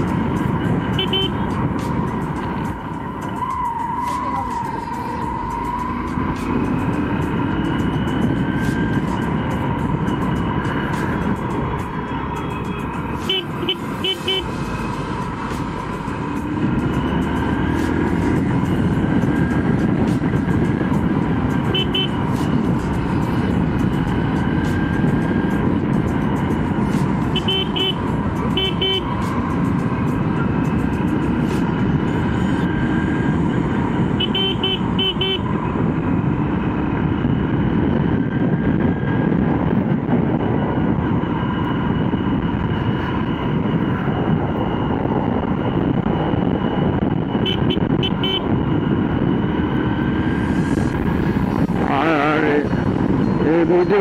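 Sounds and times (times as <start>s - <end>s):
motorcycle horn beeps: 0.9s - 1.5s, 13.2s - 14.6s, 21.7s - 22.2s, 27.3s - 29.1s, 34.2s - 35.5s, 47.4s - 48.5s.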